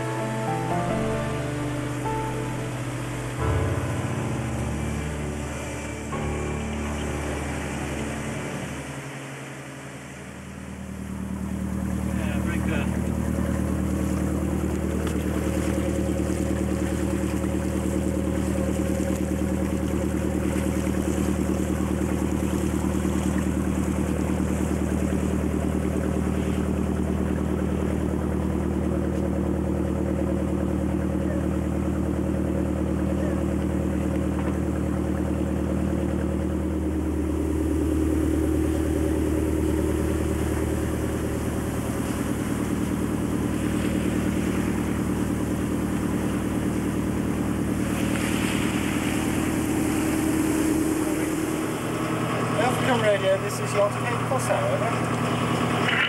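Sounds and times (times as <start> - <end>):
diesel engine droning: 0.0 - 56.0.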